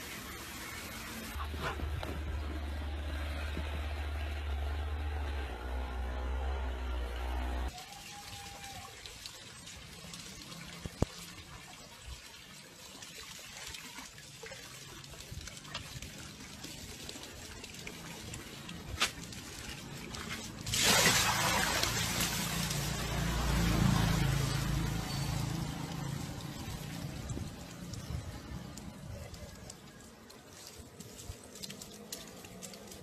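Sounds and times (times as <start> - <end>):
hose water trickling into tub: 7.7 - 33.0
dog splashing in water: 18.6 - 27.0.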